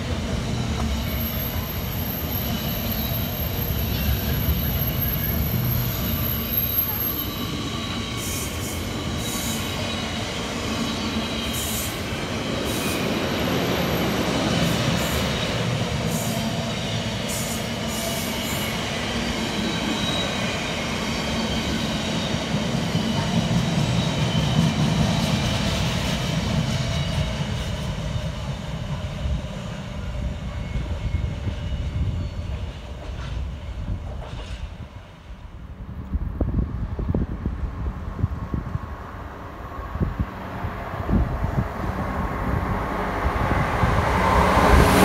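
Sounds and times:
train wheels rumbling on rails: 0.0s - 45.0s
high wheel squeal: 0.4s - 26.0s.

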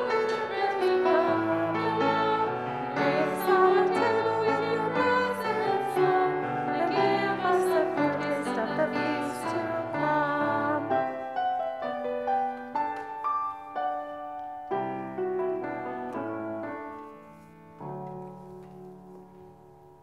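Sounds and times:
person singing: 0.0s - 11.2s
piano chords: 0.0s - 20.0s.

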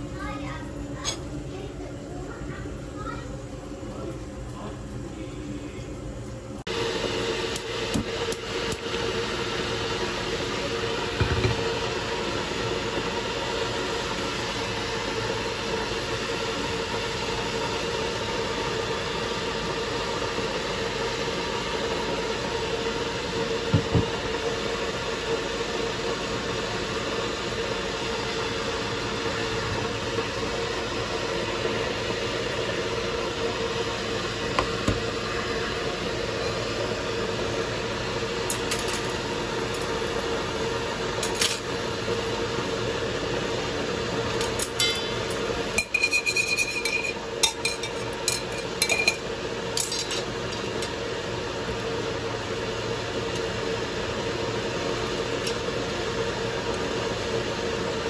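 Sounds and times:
gas burner hissing: 0.0s - 58.0s
pot knocking on grate: 11.2s - 11.6s.

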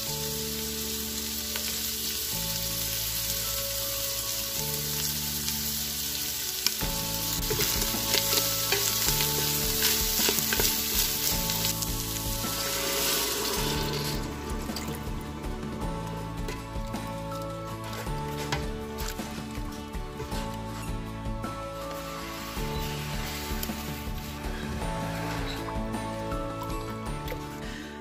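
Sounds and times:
food sizzling in a pot: 0.0s - 27.6s
soft background music: 0.0s - 28.0s
seasoning shaker clicks and taps: 7.4s - 11.8s.

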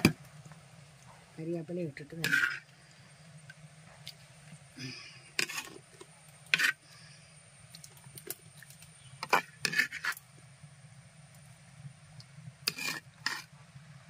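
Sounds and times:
soft scraping and stirring: 2.0s - 10.5s, 11.3s - 13.8s.

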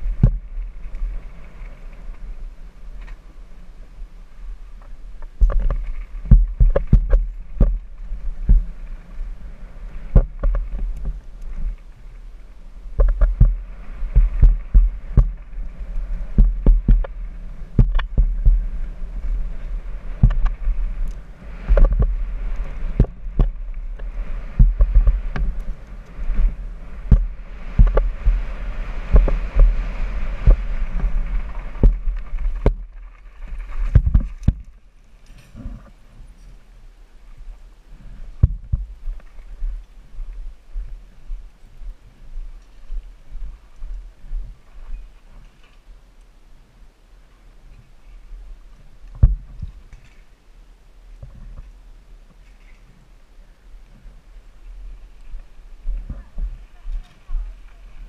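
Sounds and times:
bike knocking and rattling: 0.0s - 2.2s, 4.8s - 9.2s, 10.0s - 12.0s, 12.9s - 36.5s, 38.4s - 39.6s
wind rumble on microphone: 0.0s - 58.0s.

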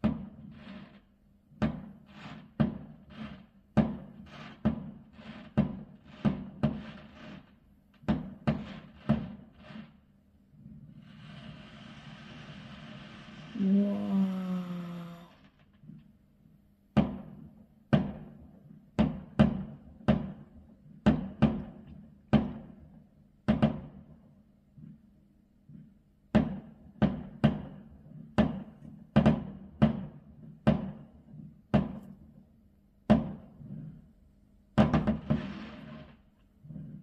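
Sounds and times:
fireworks bangs echoing: 0.0s - 10.1s, 10.9s - 15.6s, 17.0s - 22.8s, 34.7s - 36.4s.

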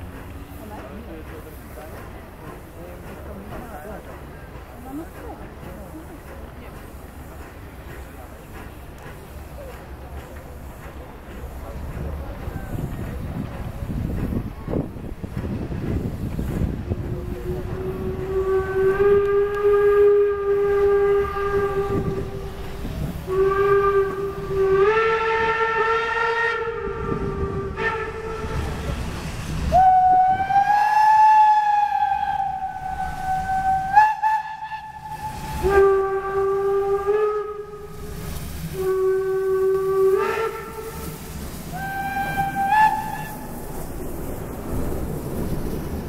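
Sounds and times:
steam train rumble: 0.0s - 46.0s
steam locomotive whistle blasts: 17.6s - 22.5s, 23.3s - 28.8s, 29.7s - 38.1s, 38.7s - 43.6s.

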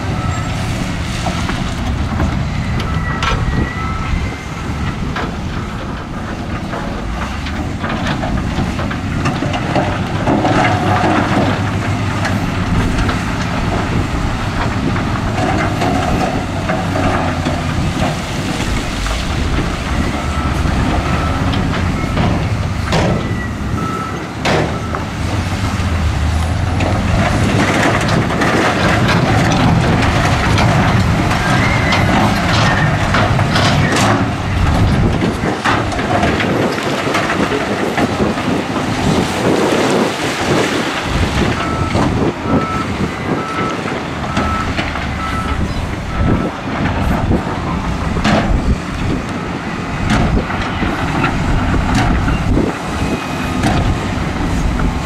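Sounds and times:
reversing beeper: 0.0s - 0.9s, 2.4s - 5.0s, 19.0s - 25.1s, 41.5s - 46.6s, 52.3s - 53.6s
diesel machinery working: 0.0s - 55.0s.

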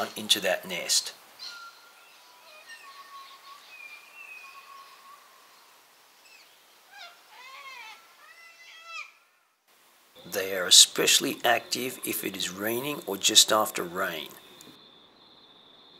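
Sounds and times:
bird chirping: 0.0s - 9.4s, 10.2s - 15.9s
faint bird whistling: 1.4s - 5.5s.

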